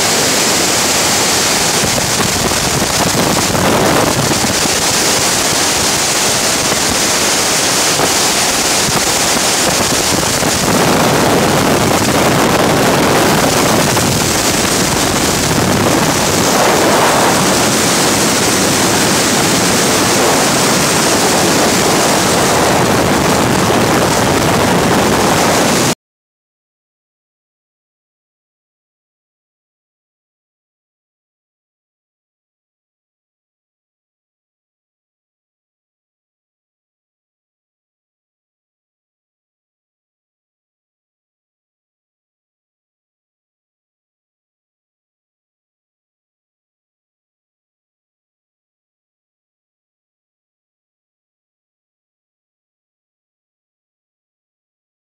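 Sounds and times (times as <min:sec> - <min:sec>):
freefall wind blasting microphone: 0:00.0 - 0:26.0.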